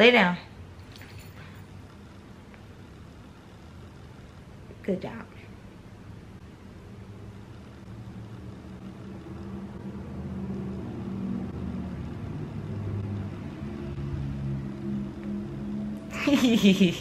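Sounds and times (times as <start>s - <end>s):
vehicle engine hum: 6.4s - 16.8s.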